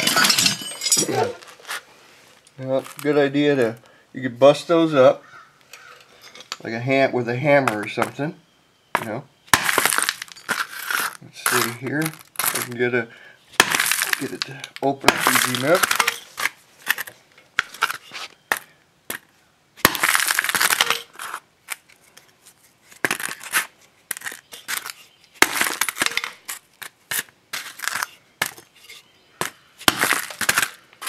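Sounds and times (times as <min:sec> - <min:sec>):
hammer crushing plastic casing: 0:09.0 - 0:12.8, 0:13.6 - 0:21.9, 0:22.9 - 0:28.7, 0:29.4 - 0:31.0.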